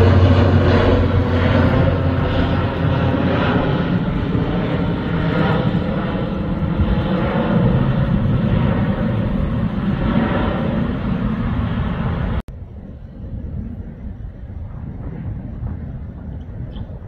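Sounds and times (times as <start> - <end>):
distant jet rumble: 0.0 - 17.0
propeller aircraft drone: 0.0 - 17.0.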